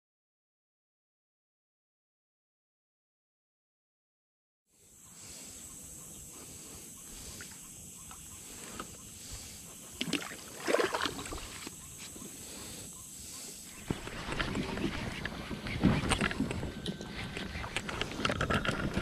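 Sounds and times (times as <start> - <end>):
water sloshing around hull: 10.0 - 11.8, 13.7 - 19.0.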